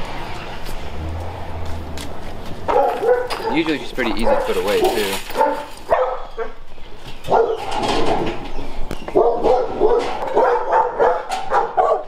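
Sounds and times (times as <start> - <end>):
dogs barking: 2.6 - 8.2, 9.0 - 12.0.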